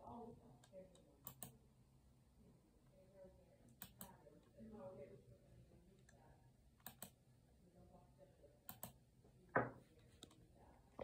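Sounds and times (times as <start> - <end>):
computer mouse clicks: 0.6 - 1.6, 3.7 - 4.2, 6.8 - 7.2, 8.7 - 9.0.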